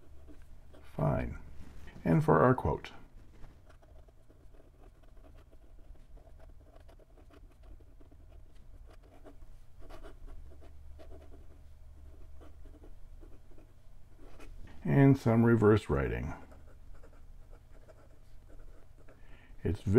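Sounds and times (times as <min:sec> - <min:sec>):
faint low hum: 0:00.0 - 0:19.9
fountain pen nib scratching paper: 0:03.4 - 0:14.5, 0:16.5 - 0:19.2.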